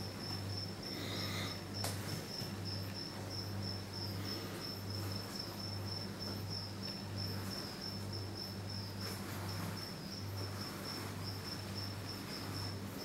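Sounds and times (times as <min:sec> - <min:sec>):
high-pitched insect trill: 0:00.0 - 0:13.0.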